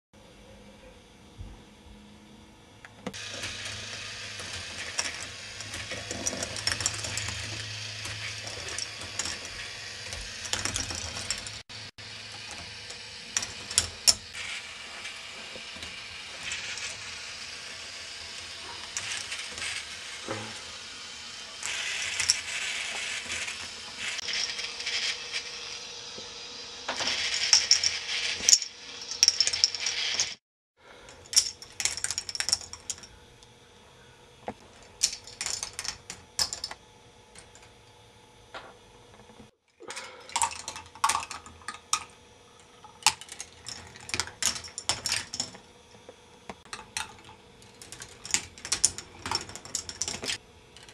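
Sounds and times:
faint motor hum: 0.2 - 50.9
plastic balls clattering on track: 3.1 - 11.6, 31.1 - 33.1, 35.0 - 36.8, 42.8 - 45.6, 46.6 - 50.9.

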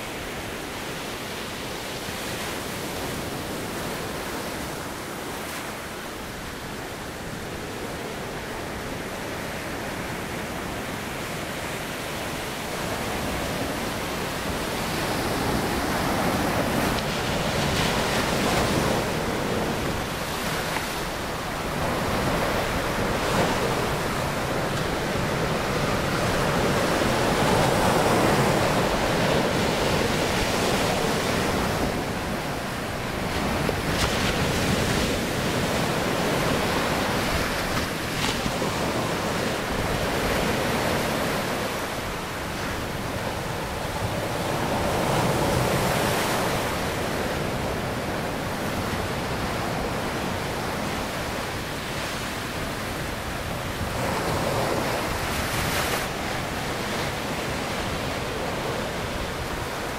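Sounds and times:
surf breaking on rocks: 13.7 - 47.9.

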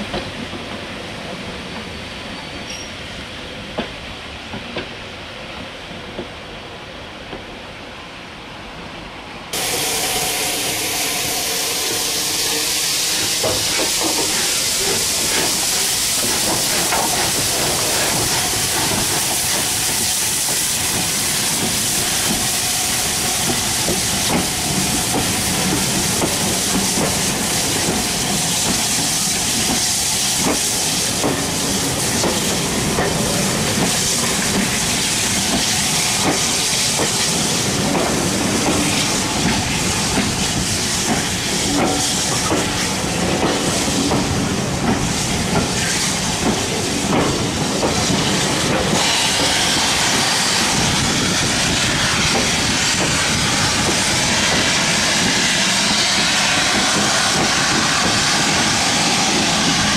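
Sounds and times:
steam hissing: 9.5 - 59.9
train wheels clicking over rail joints: 12.2 - 59.9.

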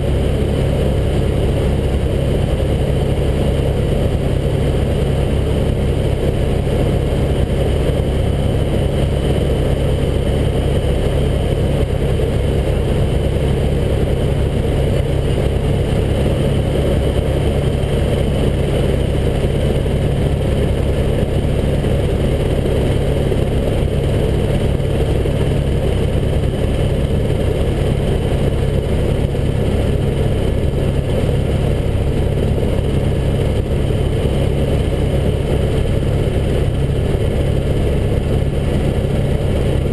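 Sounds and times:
helicopter rotor and engine: 0.0 - 39.9.

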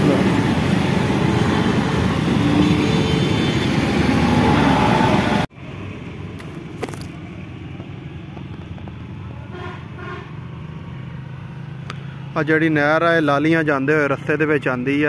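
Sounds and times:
loud road traffic: 0.0 - 15.0
horn-like tones: 9.4 - 10.4.

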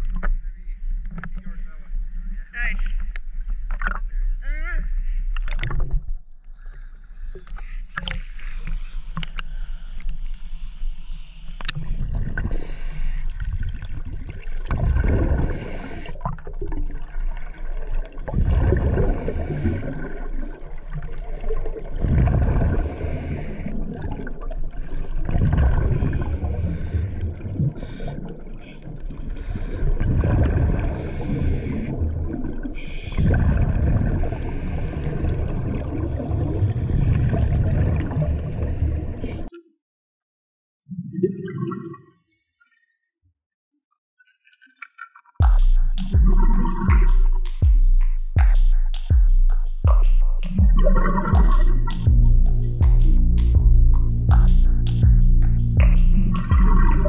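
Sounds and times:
diver inhaling through regulator: 6.5 - 13.8, 14.7 - 16.6, 18.5 - 20.4, 22.2 - 39.5
water splashing: 7.4 - 39.5, 50.5 - 57.0
exhaled bubbles rumbling: 11.8 - 39.5, 40.9 - 42.1, 45.4 - 57.0.

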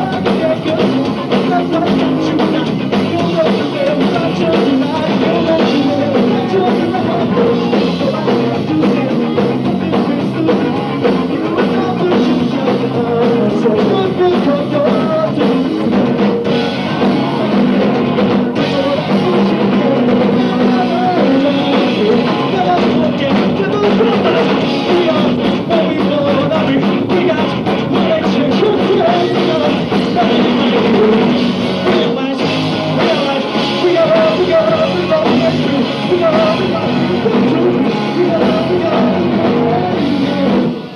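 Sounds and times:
person singing lead vocal: 0.0 - 40.9
punk rock band playing: 0.0 - 40.9.

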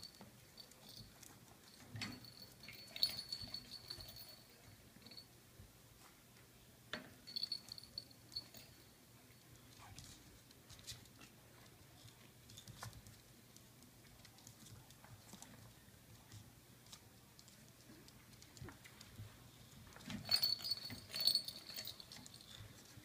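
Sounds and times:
high jingle: 1.8 - 5.2, 7.3 - 8.9, 20.0 - 22.8.

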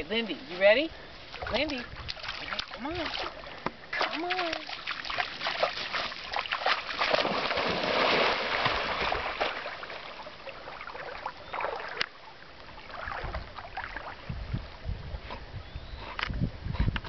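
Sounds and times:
dog splashing through water: 1.4 - 12.0.

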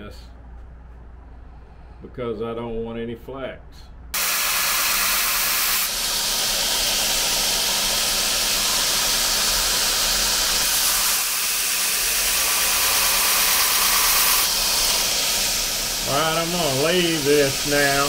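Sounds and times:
belt grinder grinding knife blade: 4.9 - 15.7.

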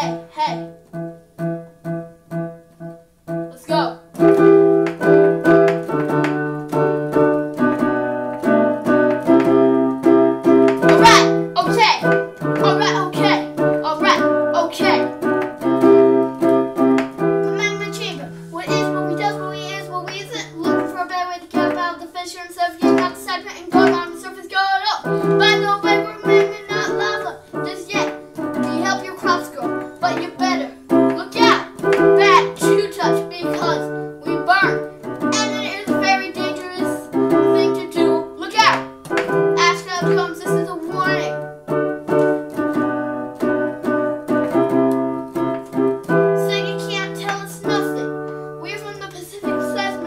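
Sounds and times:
boy rapping into microphone: 0.0 - 0.7, 3.5 - 4.0, 11.0 - 15.1, 17.4 - 38.9, 39.5 - 41.4, 46.4 - 50.0
keyboard chords: 0.0 - 50.0.

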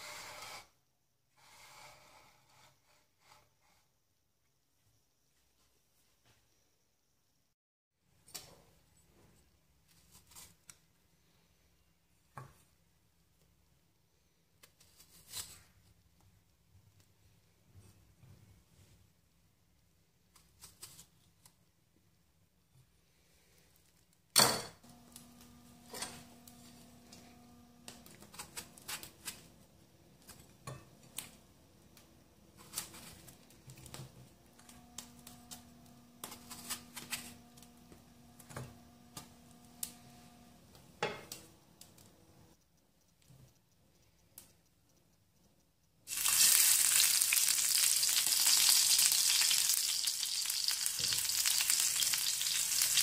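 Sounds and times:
knife cutting tomatoes: 27.8 - 29.5, 34.8 - 37.5
hot oil sizzling in pan: 46.1 - 53.0.

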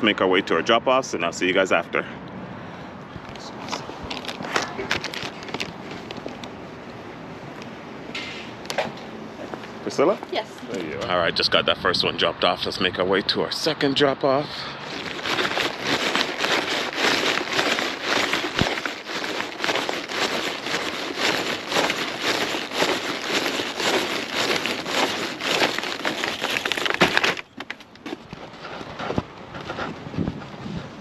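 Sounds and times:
plastic wrap crinkling: 3.7 - 6.5, 14.8 - 28.2.

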